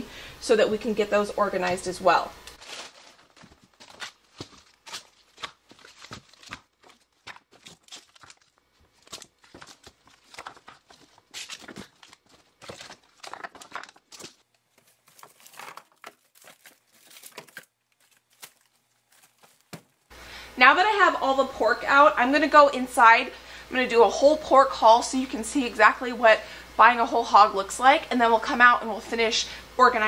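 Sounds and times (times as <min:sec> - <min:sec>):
plastic packages crinkling and knocking: 0:02.5 - 0:20.1.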